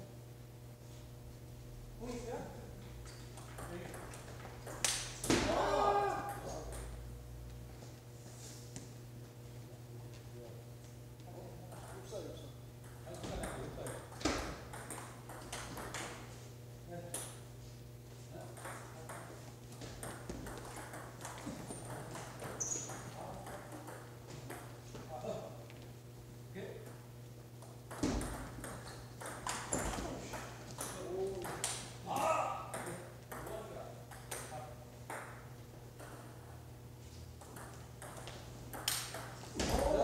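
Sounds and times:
steady low hum: 0.0 - 40.0
table tennis balls clicking: 12.8 - 16.3, 18.5 - 24.8, 27.6 - 31.9, 32.7 - 36.6, 37.4 - 40.0.

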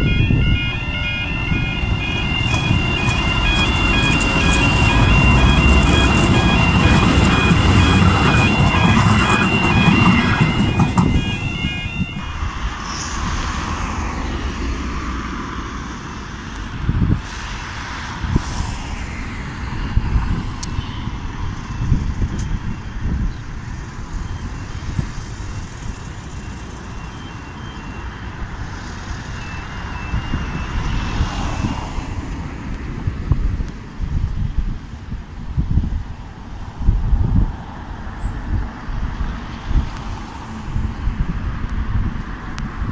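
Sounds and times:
crossing alarm alternating tones: 0.0 - 13.8, 20.6 - 31.6
wind buffeting microphone: 0.0 - 27.0, 28.2 - 42.9
train rumbling: 0.0 - 33.6
road traffic: 0.0 - 42.9
faint alternating beeps: 24.2 - 30.8.

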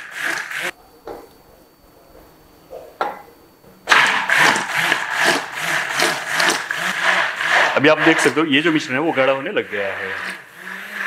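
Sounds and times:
electric hand blender running: 0.0 - 0.7, 3.9 - 11.0.

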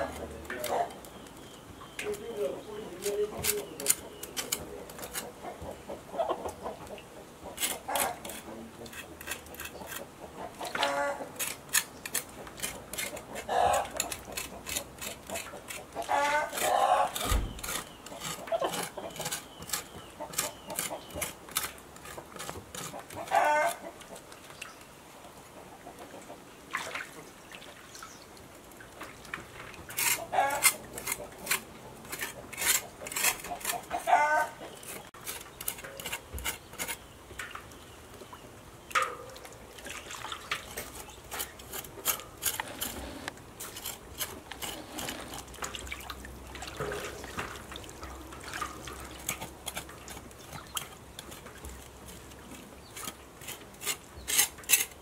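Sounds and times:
chickens clucking: 2.0 - 11.5, 12.4 - 21.4, 22.0 - 24.3, 25.2 - 26.6, 29.9 - 36.0
knife scraping pork skin: 7.6 - 10.1, 11.4 - 23.8, 30.0 - 34.2, 40.7 - 45.6, 53.0 - 55.0.

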